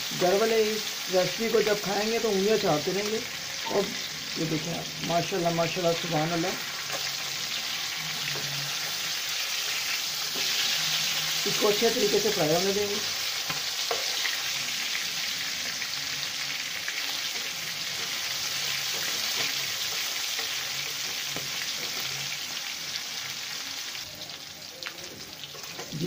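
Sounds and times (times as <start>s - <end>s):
chicken frying in oil: 0.0s - 26.0s.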